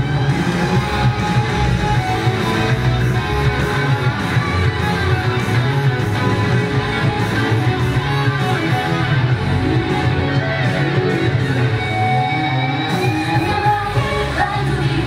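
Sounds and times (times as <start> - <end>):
drum and bass beat: 0.0 - 15.0
electric guitar: 0.0 - 15.0
person singing: 12.9 - 15.0.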